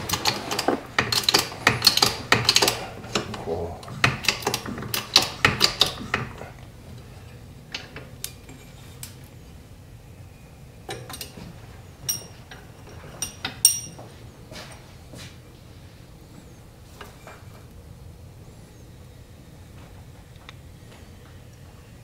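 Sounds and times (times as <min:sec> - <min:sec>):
metal tools clicking: 0:00.1 - 0:03.4, 0:12.1 - 0:14.0
metal parts clinking: 0:12.1 - 0:14.0.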